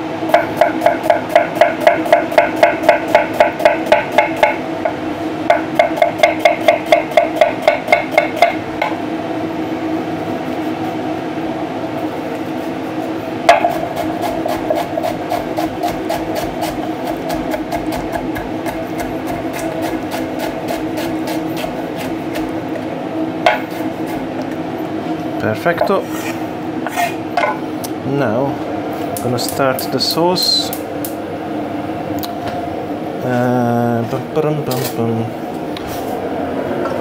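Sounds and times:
steady low hum: 0:00.0 - 0:37.0
knife chopping on cutting board: 0:00.3 - 0:04.6, 0:05.5 - 0:08.9, 0:13.5 - 0:22.5, 0:23.5 - 0:24.2.

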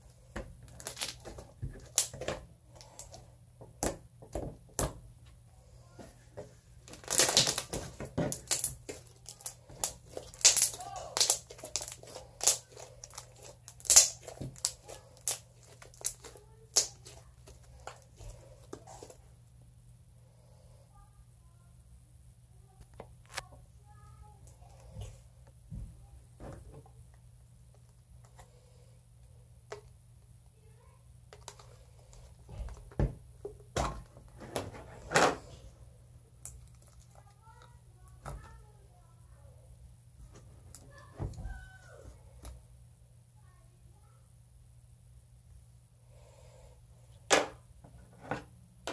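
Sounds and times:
slime popping and crackling: 0:00.7 - 0:02.2, 0:06.9 - 0:18.0.

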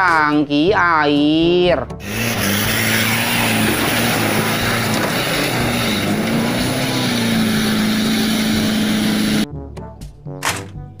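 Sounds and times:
truck engine labouring: 0:02.0 - 0:09.4.

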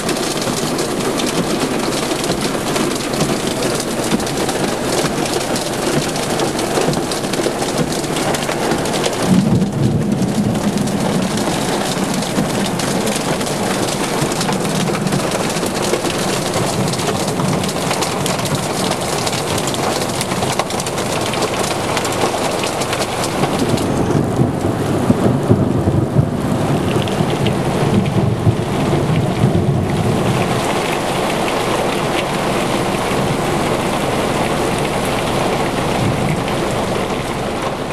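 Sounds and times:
heavy rain pouring: 0:00.0 - 0:37.9
thunder rumbling: 0:00.0 - 0:37.9.

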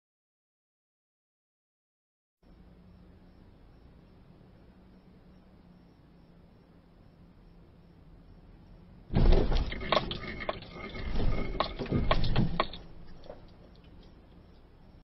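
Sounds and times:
car crash crunch: 0:09.1 - 0:13.6
car body panels cracking and scraping: 0:09.1 - 0:13.8.

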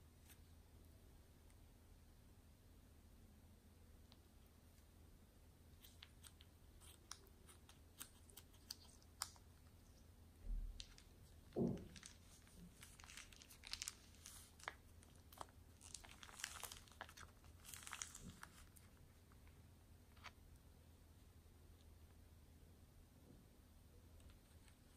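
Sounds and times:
small clicks and crackles: 0:05.8 - 0:10.0, 0:10.7 - 0:20.4
plastic piping bag crinkling: 0:05.8 - 0:20.4.

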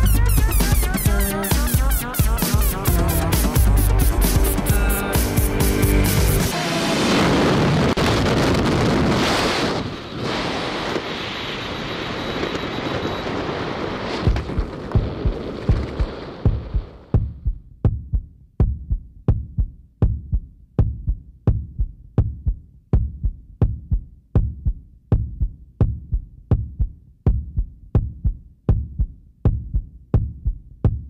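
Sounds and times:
heartbeat thumps with clicks: 0:14.2 - 0:31.0.

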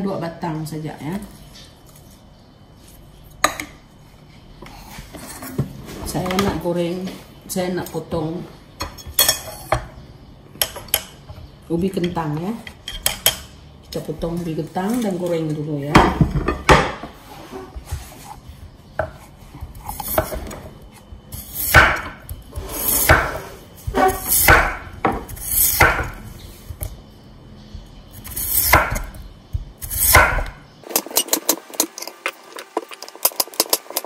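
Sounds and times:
cleaver chopping on wooden board: 0:21.6 - 0:22.2, 0:23.0 - 0:26.2, 0:28.3 - 0:30.6.

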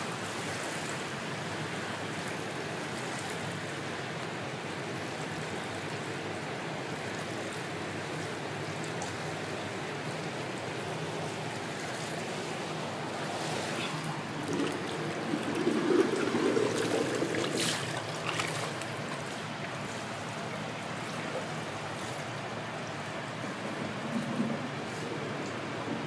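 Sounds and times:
spa water churning and bubbling: 0:00.0 - 0:26.0
splashy clicks: 0:14.4 - 0:19.3.

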